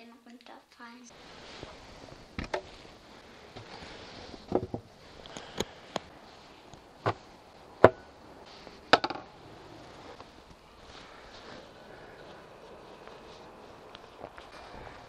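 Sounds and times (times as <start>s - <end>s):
wooden knocks and clatters: 3.6s - 4.9s, 8.9s - 9.3s.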